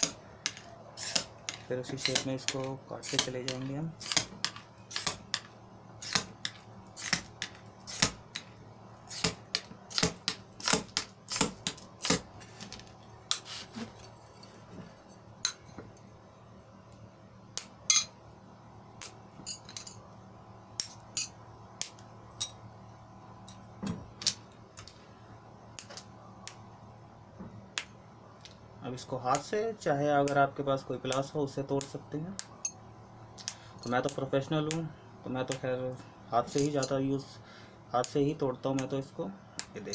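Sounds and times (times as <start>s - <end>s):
glass cutter scratching glass: 1.0s - 3.3s.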